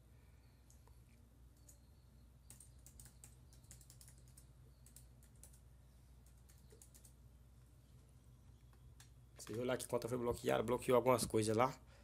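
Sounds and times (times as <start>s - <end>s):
low steady hum: 0.0s - 12.0s
computer keyboard typing: 1.5s - 7.2s.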